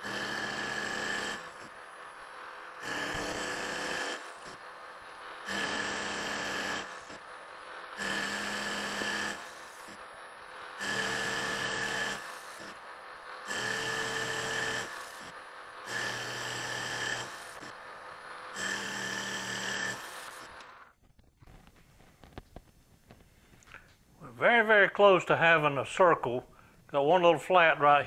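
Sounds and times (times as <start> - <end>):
lathe cutting whine: 0.0 - 20.8
metal lathe running: 0.0 - 20.9.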